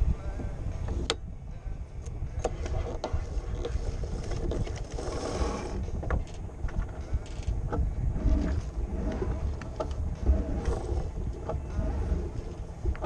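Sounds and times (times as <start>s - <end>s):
wind buffeting microphone: 0.0s - 13.0s
rigging clicks and creaks: 2.0s - 13.0s
water rushing along hull: 2.8s - 13.0s.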